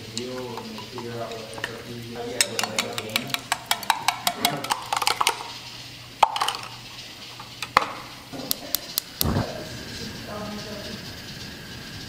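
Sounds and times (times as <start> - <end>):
metal utensil clicking on glass: 0.1 - 5.6.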